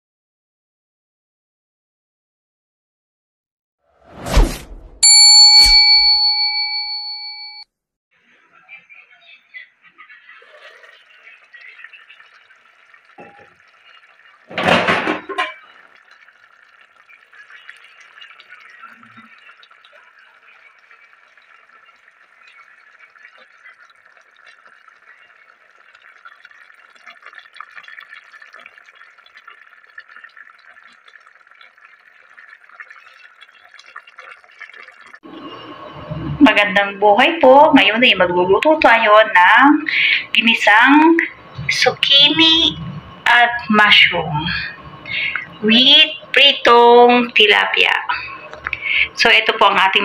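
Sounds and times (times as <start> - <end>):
sauce bubbling and popping: 10.4 - 35.2, 44.5 - 46.7, 47.4 - 49.3.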